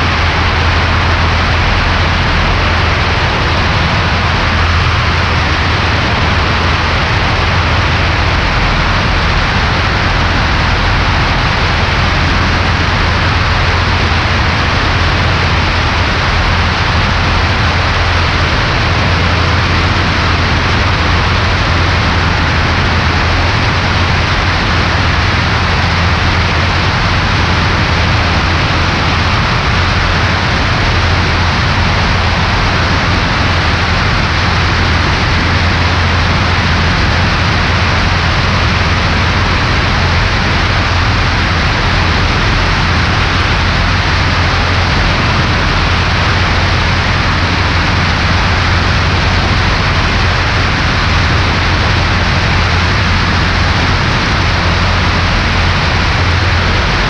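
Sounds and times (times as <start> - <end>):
airplane engine and propeller droning: 0.0 - 57.0
wind rush: 0.0 - 57.0.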